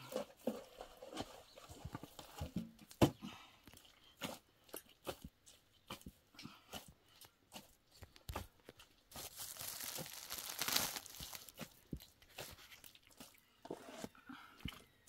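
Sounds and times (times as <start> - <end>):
rustling crinkling: 7.6 - 13.3.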